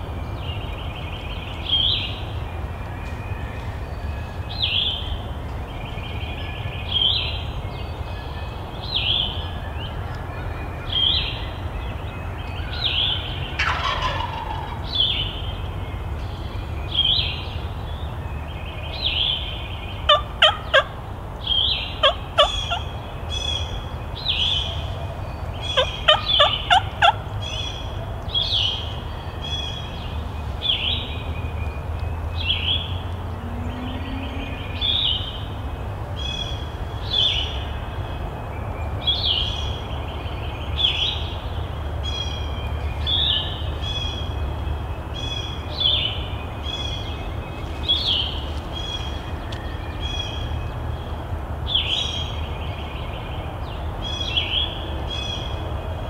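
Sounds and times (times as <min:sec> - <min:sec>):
turkey gobbling: 0:13.6 - 0:14.8, 0:20.1 - 0:21.0, 0:22.0 - 0:22.9, 0:25.7 - 0:27.3.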